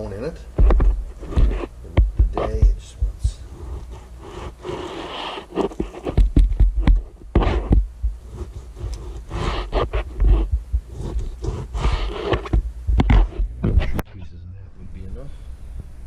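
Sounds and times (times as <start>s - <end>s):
knife scraping strokes: 3.2s - 13.5s.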